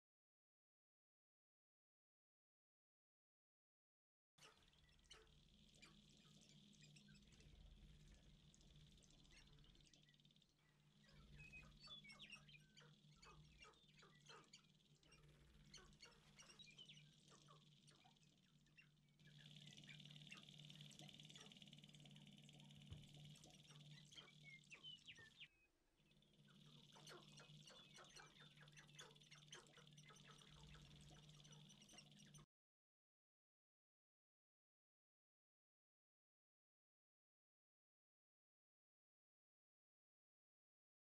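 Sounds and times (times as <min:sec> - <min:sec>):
birds clucking and chirping: 0:26.6 - 0:32.4.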